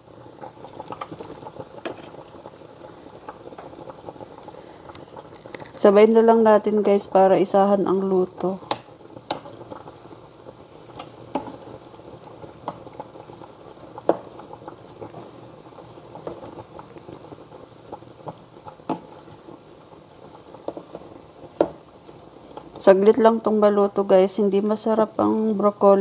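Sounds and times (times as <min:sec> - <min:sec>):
spatula stirring vegetables: 0:00.0 - 0:05.7, 0:07.8 - 0:22.9
water simmering in a saucepan: 0:00.0 - 0:26.0.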